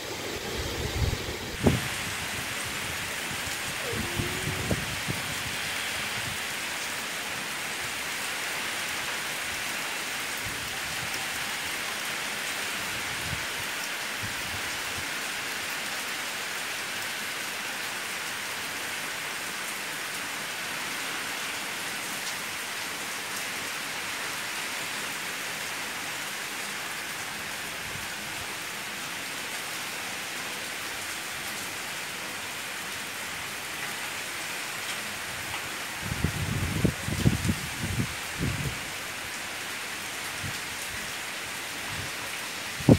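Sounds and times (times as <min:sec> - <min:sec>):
heavy rain hissing: 0:00.0 - 0:17.8.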